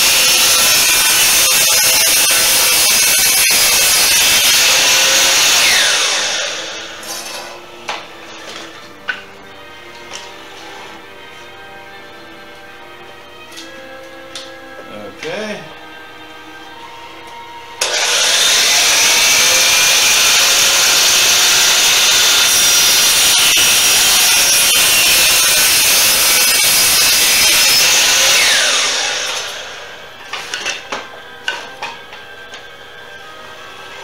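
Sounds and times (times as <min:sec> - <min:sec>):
saw blade winding down whine: 0:00.0 - 0:07.4, 0:17.8 - 0:30.9
miter saw cutting wood: 0:00.0 - 0:09.2, 0:17.8 - 0:34.0.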